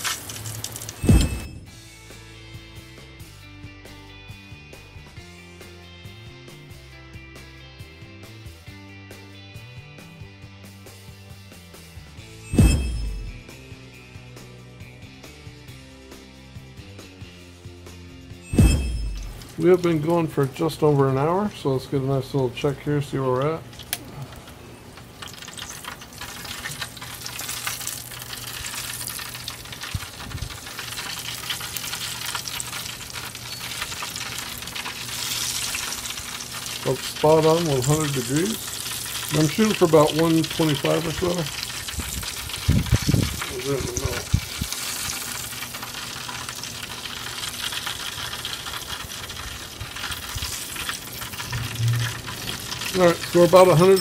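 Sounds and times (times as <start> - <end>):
fat sizzling on fire: 0.0 - 1.9, 18.4 - 54.0
low steady hum: 18.5 - 25.1, 50.5 - 54.0.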